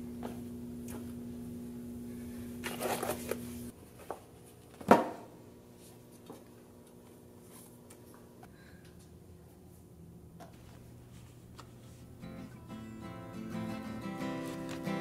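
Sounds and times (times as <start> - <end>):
steady low hum: 0.0 - 15.0
book thumping onto shelf: 4.8 - 5.2
books rustling: 14.4 - 15.0.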